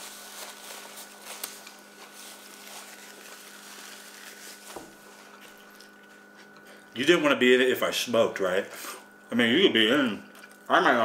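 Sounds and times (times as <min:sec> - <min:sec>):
electrical hum: 0:00.0 - 0:11.0
chewing food: 0:05.2 - 0:06.9, 0:10.2 - 0:10.7.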